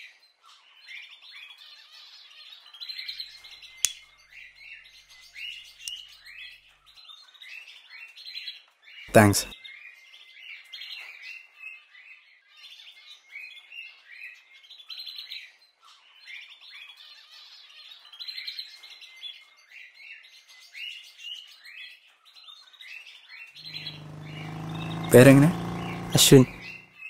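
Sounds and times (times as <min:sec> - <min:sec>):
small birds chirping: 0:23.6 - 0:27.0.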